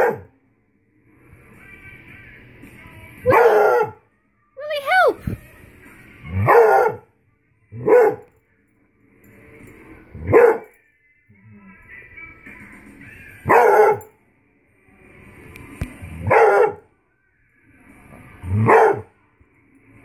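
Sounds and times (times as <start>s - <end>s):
dog barking: 0.0s - 0.3s, 3.3s - 4.0s, 6.3s - 7.1s, 7.8s - 8.3s, 10.2s - 10.7s, 13.4s - 14.1s, 16.2s - 16.8s, 18.5s - 19.1s.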